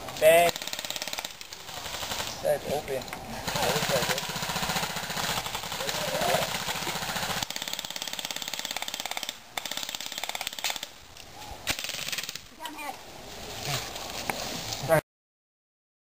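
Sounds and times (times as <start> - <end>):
airsoft guns firing full auto: 0.3 - 2.8, 3.4 - 10.9, 11.7 - 12.4.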